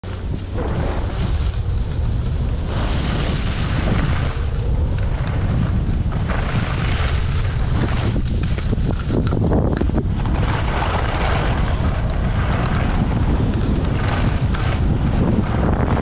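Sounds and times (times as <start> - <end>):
skis scraping packed snow: 0.0 - 16.0
wind buffeting microphone: 0.0 - 16.0.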